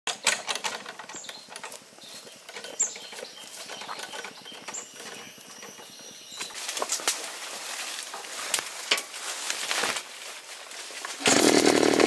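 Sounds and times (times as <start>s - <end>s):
footsteps on dirt path: 1.8s - 11.2s.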